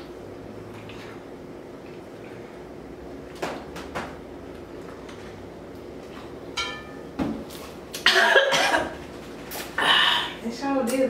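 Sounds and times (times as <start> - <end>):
woman coughing: 8.0 - 9.0.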